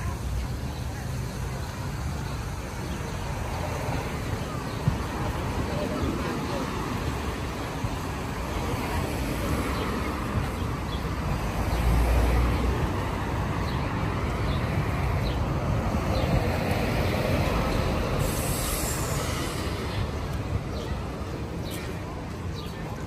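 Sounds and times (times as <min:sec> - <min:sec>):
street traffic noise: 0:00.0 - 0:23.0
high hiss: 0:17.8 - 0:20.4.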